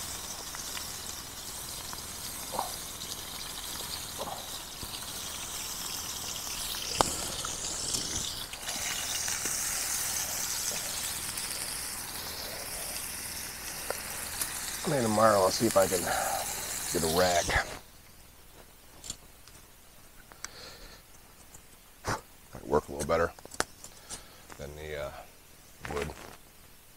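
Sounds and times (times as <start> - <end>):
campfire hissing and crackling: 0.0 - 18.2, 20.1 - 26.4
campfire pop: 0.1 - 13.0.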